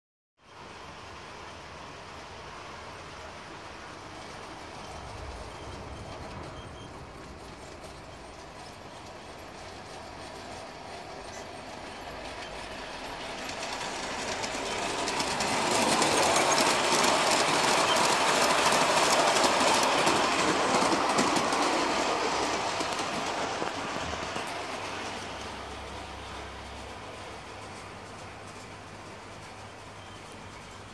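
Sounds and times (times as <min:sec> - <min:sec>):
model train wheels rumbling and clicking: 0:01.3 - 0:30.9.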